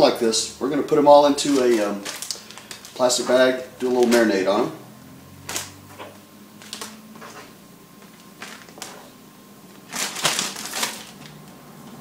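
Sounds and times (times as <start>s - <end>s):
plastic bag crinkling: 1.0s - 4.6s, 6.6s - 11.6s.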